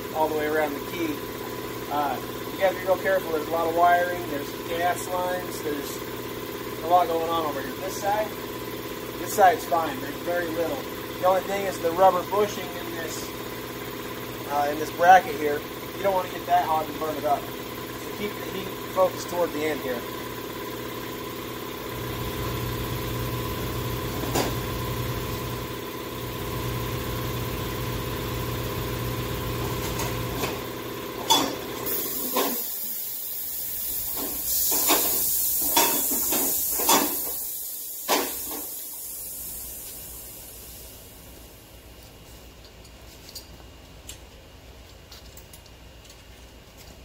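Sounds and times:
steady machine hum: 0:00.0 - 0:47.0
high hiss of escaping gas: 0:31.9 - 0:41.2.

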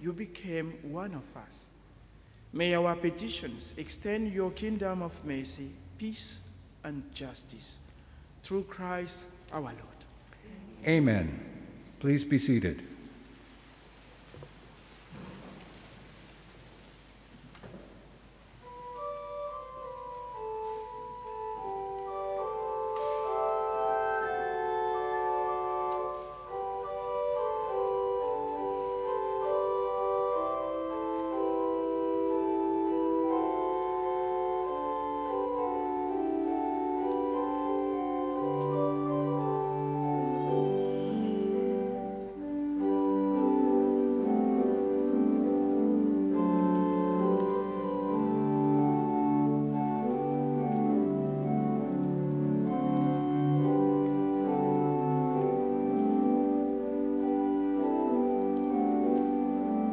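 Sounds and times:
church organ slow chords: 0:00.0 - 0:13.2, 0:18.6 - 0:59.9
low organ bass notes: 0:18.6 - 0:59.9.

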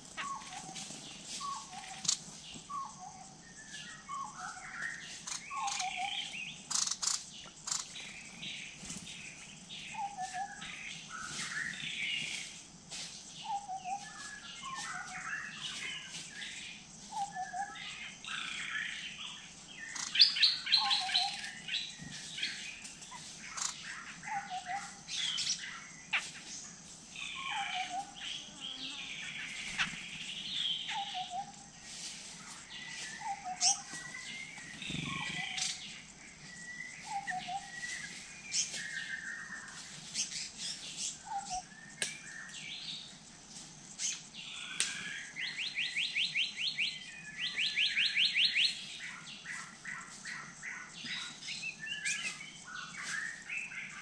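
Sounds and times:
rapid bird trills: 0:00.0 - 0:12.6, 0:13.4 - 0:32.0
forest birds calling: 0:00.0 - 0:54.0.

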